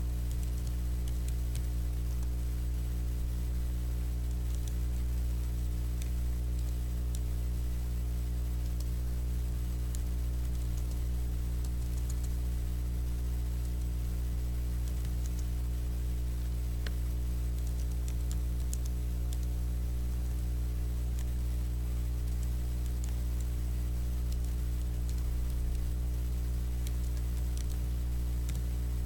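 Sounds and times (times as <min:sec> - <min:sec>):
low electrical hum: 0:00.0 - 0:29.0
typing on computer keyboard: 0:04.2 - 0:04.8, 0:09.9 - 0:11.0, 0:11.6 - 0:12.4, 0:14.8 - 0:15.5, 0:16.8 - 0:19.5, 0:24.2 - 0:27.8, 0:28.4 - 0:28.7.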